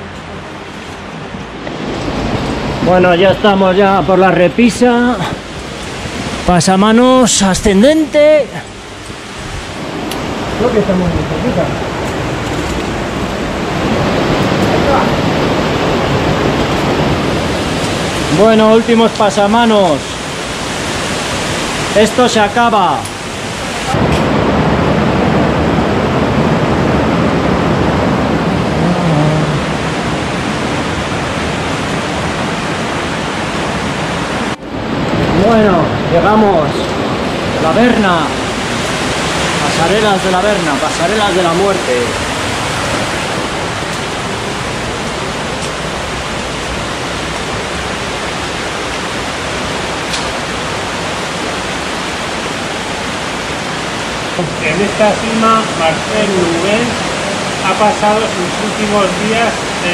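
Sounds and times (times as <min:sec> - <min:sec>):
underground water rushing in cave: 0:00.0 - 0:59.9.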